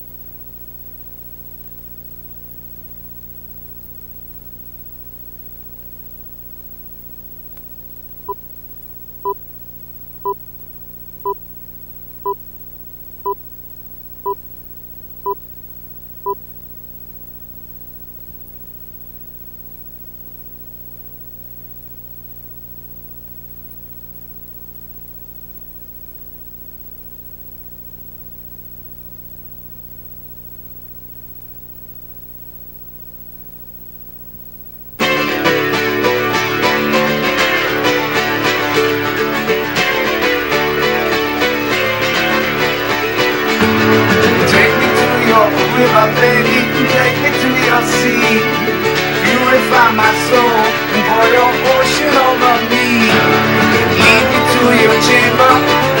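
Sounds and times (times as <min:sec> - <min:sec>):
low hum and hiss: 0:00.0 - 0:35.0.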